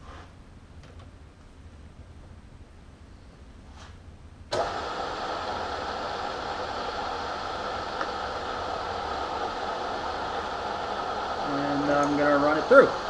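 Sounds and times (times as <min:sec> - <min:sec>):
milling machine motor humming: 0:04.5 - 0:13.0.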